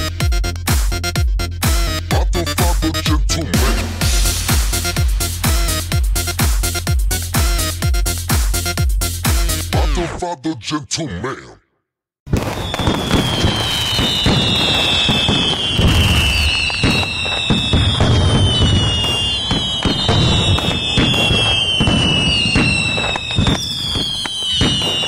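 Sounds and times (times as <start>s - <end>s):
fireworks crackling and popping: 3.6s - 7.6s, 12.3s - 25.0s
whistling fireworks sliding down: 4.0s - 6.8s, 12.3s - 25.0s.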